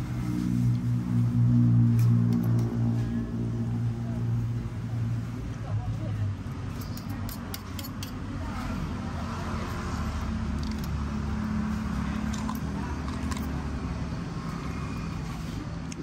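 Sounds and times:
vehicle engine rumble: 0.0 - 16.0
metal spoon clinking on ceramic bowl: 6.7 - 8.2.

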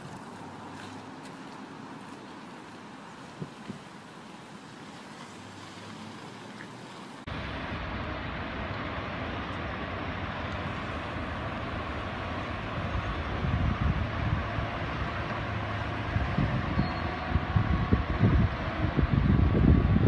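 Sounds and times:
street traffic noise: 0.0 - 20.0
truck engine rumbling: 4.1 - 20.0.

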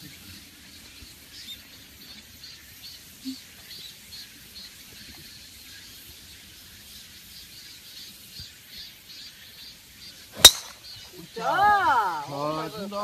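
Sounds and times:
golf club striking ball: 10.4 - 11.0.

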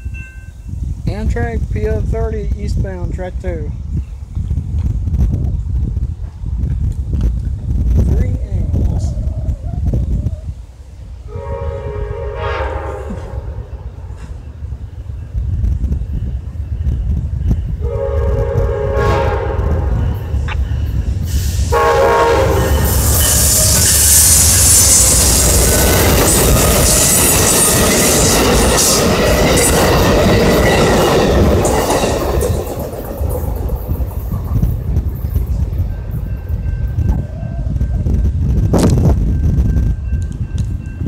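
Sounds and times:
train wheels on rails: 4.0 - 9.0, 11.9 - 41.0
train horn: 11.3 - 13.8, 17.8 - 20.2, 21.6 - 25.0.

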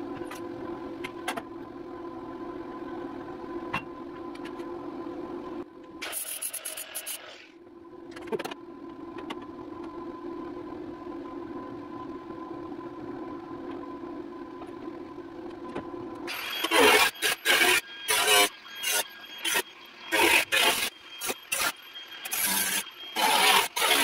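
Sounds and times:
angle grinder grinding steel: 16.3 - 24.0.

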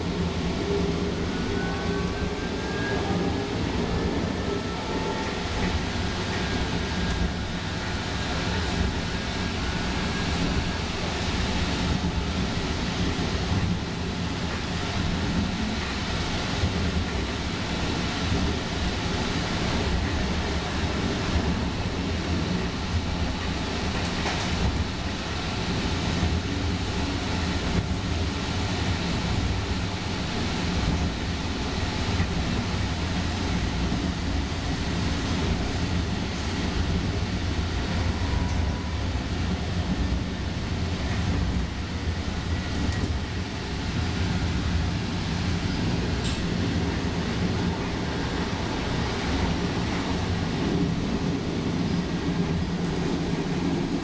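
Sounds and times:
train wheels rumbling on rails: 0.0 - 54.0.

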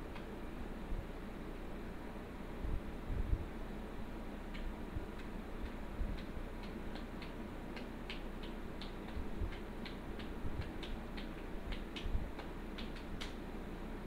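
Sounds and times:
steady low hum: 0.0 - 14.0
light sharp clicks: 4.5 - 13.4.

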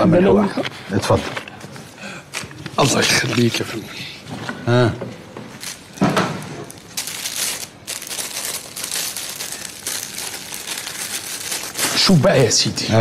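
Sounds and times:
paper banknotes rustling: 5.5 - 12.5.

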